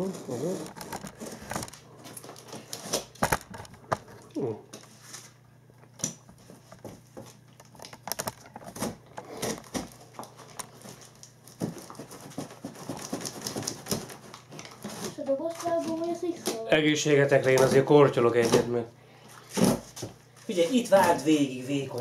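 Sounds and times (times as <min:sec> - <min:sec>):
knife cutting packing tape: 0:08.7 - 0:09.9, 0:10.8 - 0:16.6.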